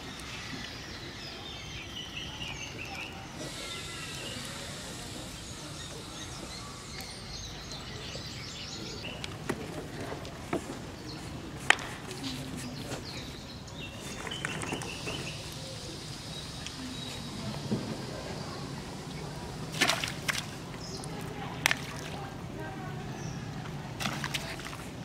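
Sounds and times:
small birds chirping: 0.0 - 9.7, 12.2 - 17.7.

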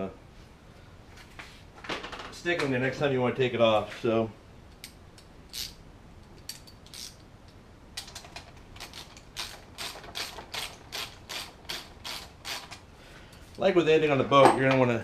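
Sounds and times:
socket ratchet clicking: 4.7 - 12.8.

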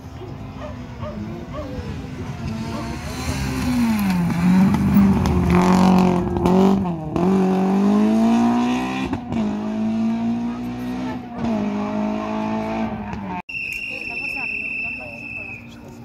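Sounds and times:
rally car engine at high revs: 2.1 - 13.4.

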